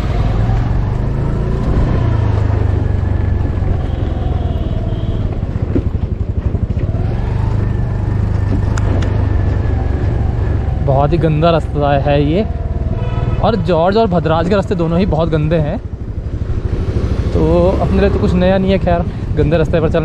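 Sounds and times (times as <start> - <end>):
scooter engine revving: 0.0 - 10.8, 15.9 - 18.7.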